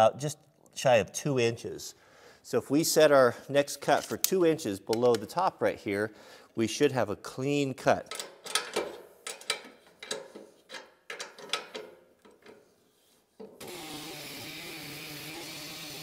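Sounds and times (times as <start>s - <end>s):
metal clicks and knocks: 8.0s - 12.6s.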